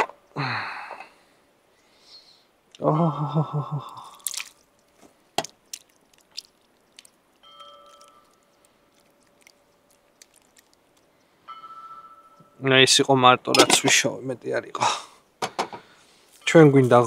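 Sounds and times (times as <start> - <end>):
faint steady ringing tone: 7.4 - 10.1, 10.8 - 14.1
cookware clicks and knocks: 13.6 - 14.0.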